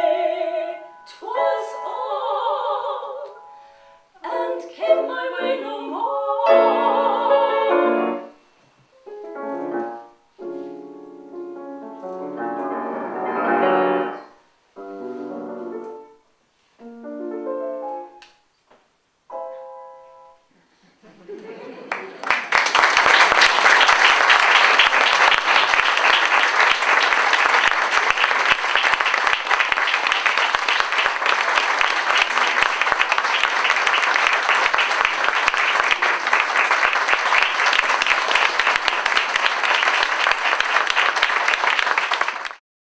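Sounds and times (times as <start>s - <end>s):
audience applauding: 21.8s - 42.6s.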